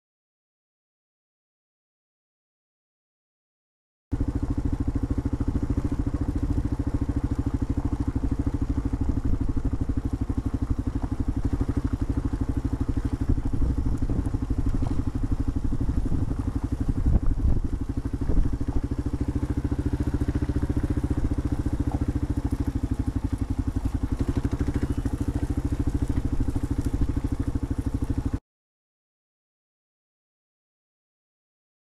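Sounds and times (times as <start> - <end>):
motorcycle engine rumbling: 4.2 - 28.4.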